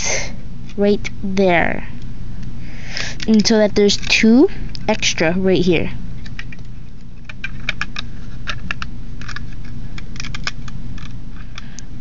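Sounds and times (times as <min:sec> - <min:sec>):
plastic bricks clicking: 0:10.2 - 0:11.6.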